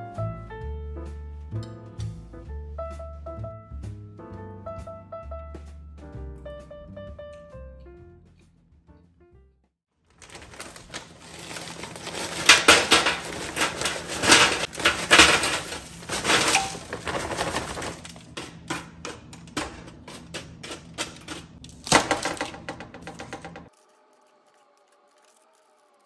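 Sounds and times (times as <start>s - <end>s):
pieces clicking as they settle: 10.1s - 18.2s
frozen vegetables clattering on baking sheet: 10.1s - 23.7s
knock: 22.5s - 23.7s.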